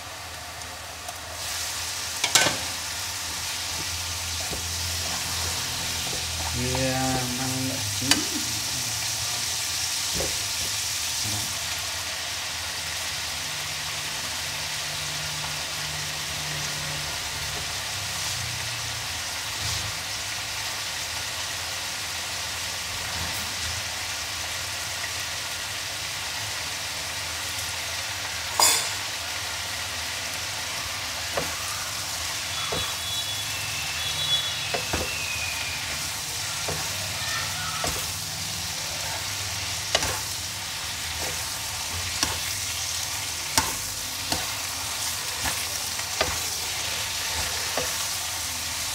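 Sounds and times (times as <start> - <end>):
food sizzling in a pan: 0.0 - 48.9
spatula clinking against pan: 28.6 - 29.1.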